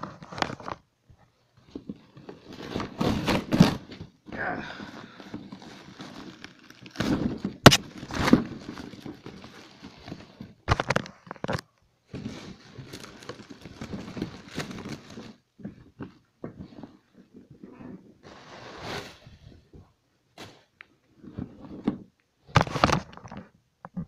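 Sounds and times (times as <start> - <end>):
plastic bag rustling: 1.6 - 17.0.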